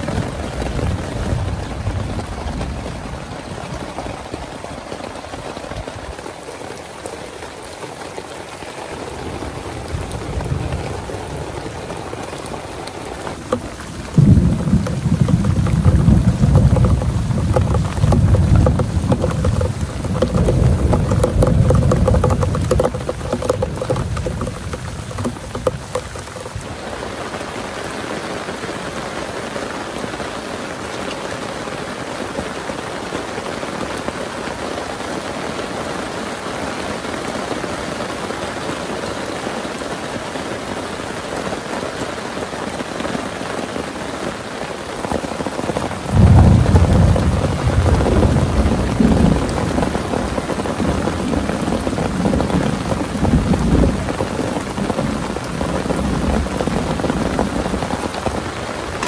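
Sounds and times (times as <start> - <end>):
heavy rain falling: 0.0 - 59.0
deep rumble of thunder: 13.6 - 26.6, 46.0 - 58.2.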